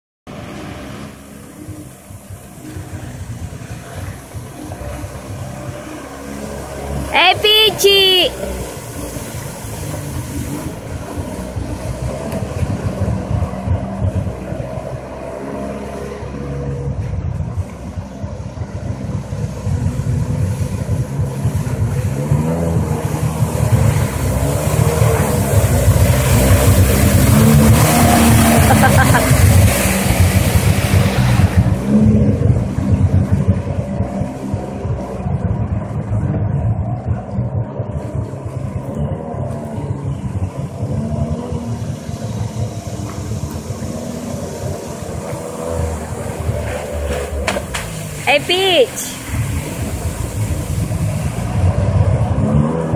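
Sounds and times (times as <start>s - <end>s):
watercraft engine running: 0.3s - 52.4s
low rumble: 0.3s - 52.9s
water spray hissing: 7.7s - 12.4s, 20.4s - 31.6s, 41.9s - 51.8s.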